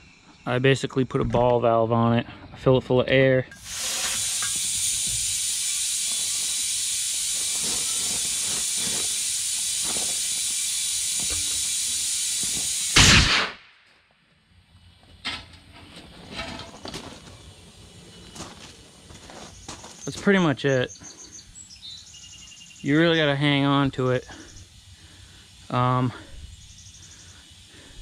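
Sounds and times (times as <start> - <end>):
compressed air hissing: 3.5 - 13.6, 16.5 - 28.0
loud blast of air: 3.6 - 13.7.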